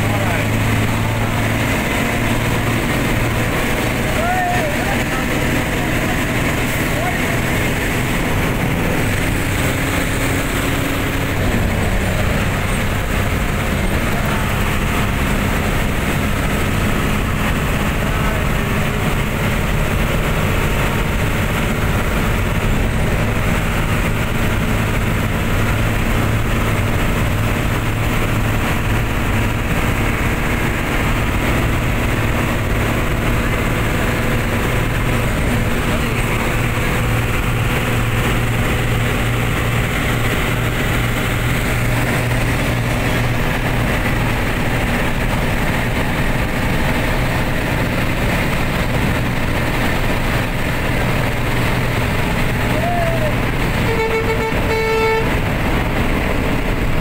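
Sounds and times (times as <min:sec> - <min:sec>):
engine drone: 0:00.0 - 0:57.0
tyre and road noise: 0:00.0 - 0:57.0.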